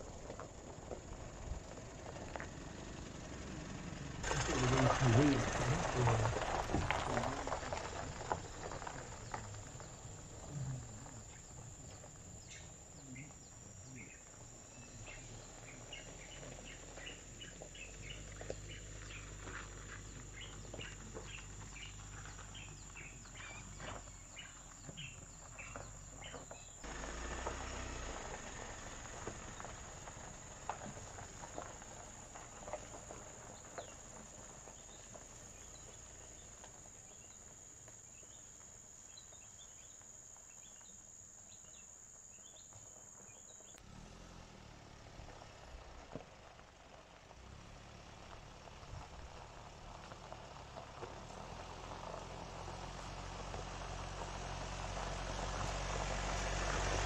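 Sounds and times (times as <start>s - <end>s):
faint low rumble: 0.0s - 37.4s
bird chirps: 8.7s - 19.3s, 20.0s - 26.8s.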